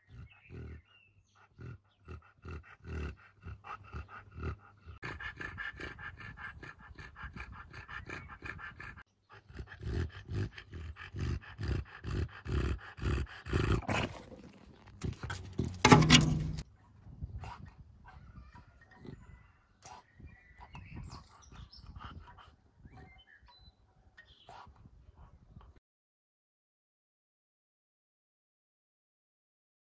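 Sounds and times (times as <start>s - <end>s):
dog breathing noisily: 0.0s - 16.6s.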